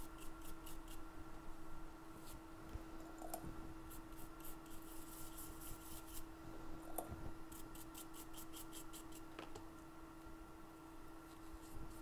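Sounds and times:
toothbrush scratching: 0.0 - 1.0, 3.9 - 6.3, 7.5 - 9.3
steady low hum: 0.0 - 12.0.

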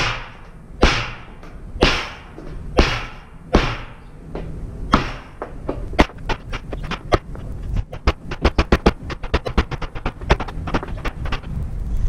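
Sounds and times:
hammer striking chisel on metal: 0.0 - 4.1, 4.9 - 7.2.

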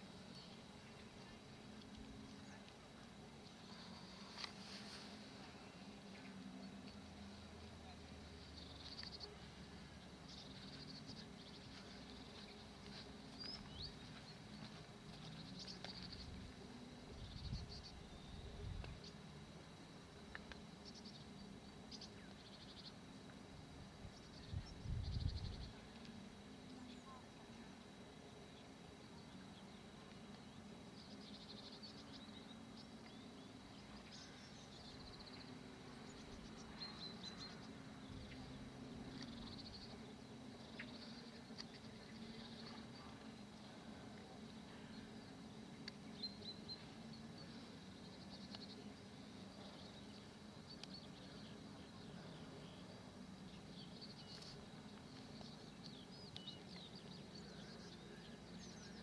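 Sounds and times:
faint bird chirps and trills: 0.0 - 59.0
low steady hum: 0.0 - 59.0.

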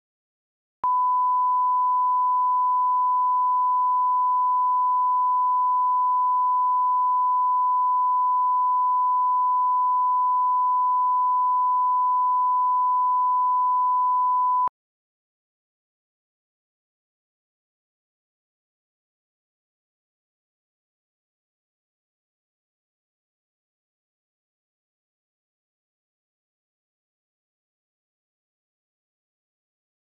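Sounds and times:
steady pure test tone: 0.8 - 14.7.

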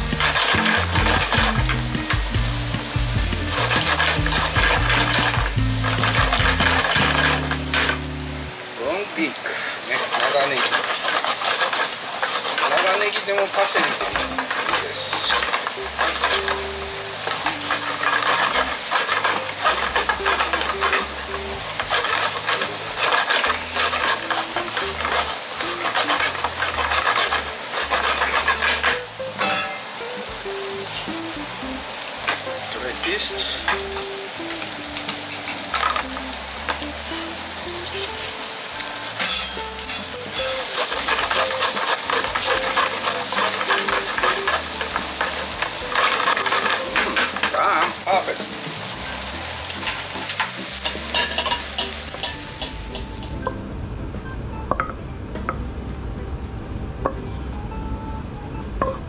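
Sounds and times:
wooden spatula scraping a pan: 0.0 - 8.2, 9.5 - 29.9, 32.0 - 38.3, 39.0 - 53.3
rice sizzling in a frying pan: 0.0 - 53.5.

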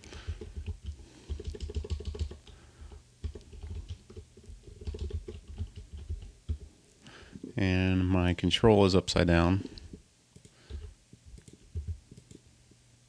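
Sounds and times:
typing on computer keyboard: 0.2 - 6.7, 10.4 - 12.4.

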